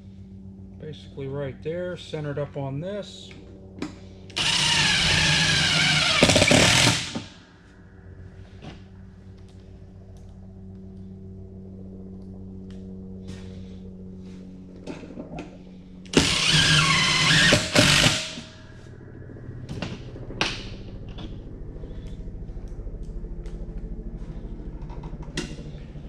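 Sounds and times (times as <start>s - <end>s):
low hum: 0.0s - 26.0s
cordless drill driving screws: 4.4s - 7.3s, 16.1s - 18.4s.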